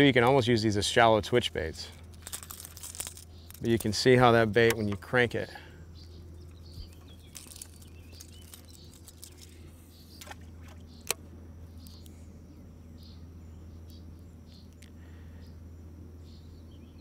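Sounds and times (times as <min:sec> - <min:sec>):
faint insect chirps: 0:00.0 - 0:17.0
steady low hum: 0:00.0 - 0:17.0
bird chirps: 0:05.6 - 0:15.6, 0:16.2 - 0:17.0.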